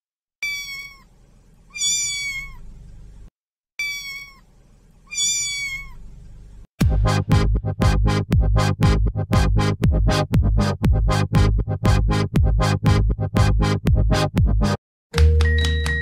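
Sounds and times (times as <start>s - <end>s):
kitten meowing: 0.4s - 1.1s, 1.7s - 2.7s, 3.8s - 4.4s, 5.0s - 6.1s.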